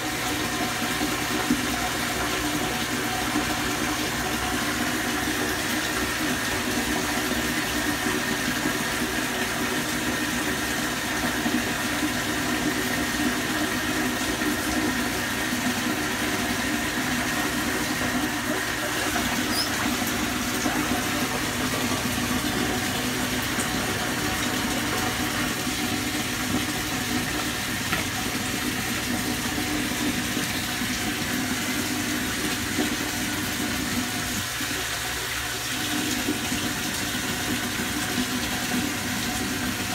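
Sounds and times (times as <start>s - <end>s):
bathtub tap running: 0.0s - 39.9s.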